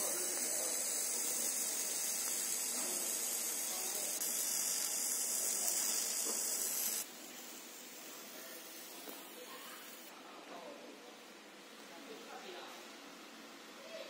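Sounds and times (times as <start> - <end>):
laser cutter high hiss: 0.0 - 10.1
faint background noise: 0.0 - 14.0.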